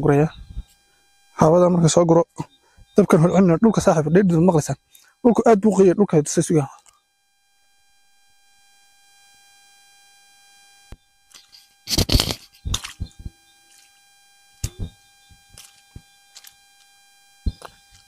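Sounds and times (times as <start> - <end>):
faint high electronic whine: 0.0 - 18.0
rustling and thumping from handling: 11.3 - 13.9, 14.6 - 16.6, 17.5 - 18.0.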